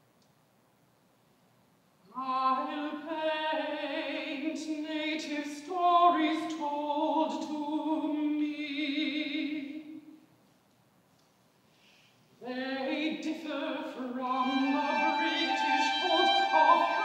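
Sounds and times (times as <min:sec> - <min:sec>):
woman singing classical song: 0:02.1 - 0:10.0, 0:12.4 - 0:17.0.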